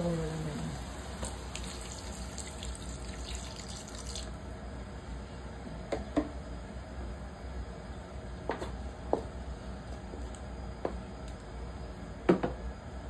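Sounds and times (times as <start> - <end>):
water pouring into a pan: 0.7 - 4.4.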